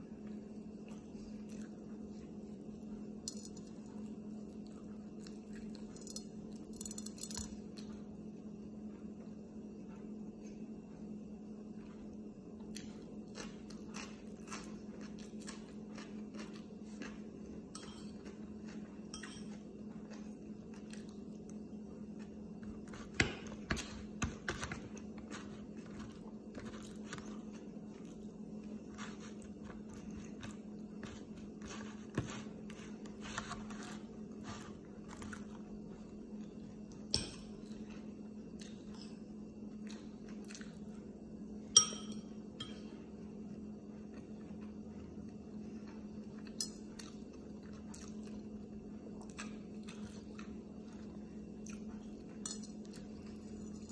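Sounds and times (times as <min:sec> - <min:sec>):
steady low hum: 0:00.0 - 0:53.9
person chewing: 0:11.8 - 0:39.0.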